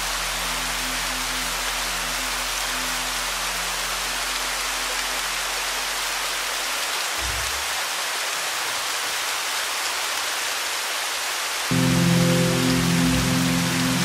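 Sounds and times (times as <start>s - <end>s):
falling rain: 0.0s - 14.0s.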